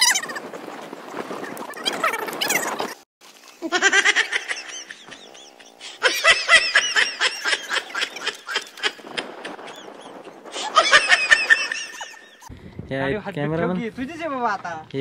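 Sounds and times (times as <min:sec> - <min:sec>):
men laughing hard: 0:03.6 - 0:12.5.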